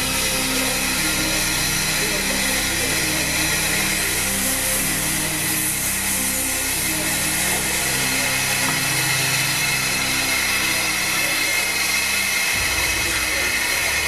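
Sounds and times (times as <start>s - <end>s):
low hum: 0.0s - 14.0s
steam locomotive hissing: 0.0s - 14.0s.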